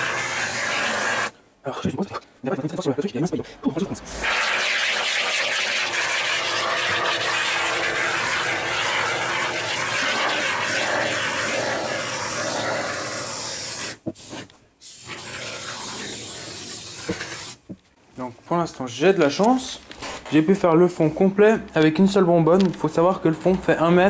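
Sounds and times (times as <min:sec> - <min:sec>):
aerosol foam spraying: 0:00.0 - 0:01.3, 0:04.1 - 0:17.7.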